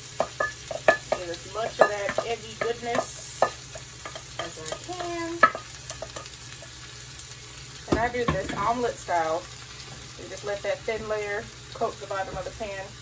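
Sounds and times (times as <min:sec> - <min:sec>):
frying pan sizzling: 0:00.0 - 0:13.0.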